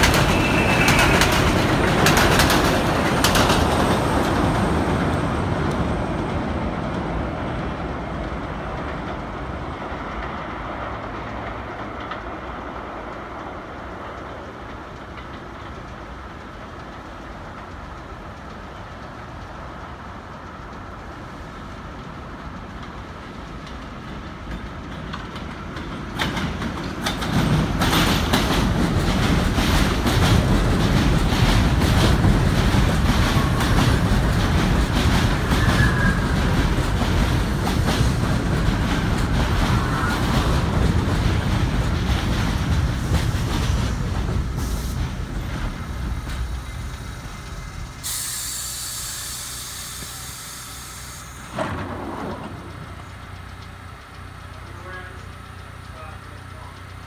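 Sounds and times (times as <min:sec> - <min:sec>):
train wheels clattering over rail joints: 0:00.0 - 0:57.0
brake squeal: 0:00.2 - 0:01.4, 0:35.4 - 0:36.4
hiss of air: 0:42.5 - 0:51.8.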